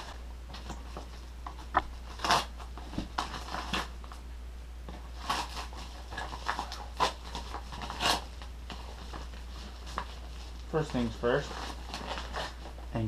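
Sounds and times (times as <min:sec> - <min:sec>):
paper mailer ripping: 0:01.9 - 0:04.0, 0:05.1 - 0:12.8.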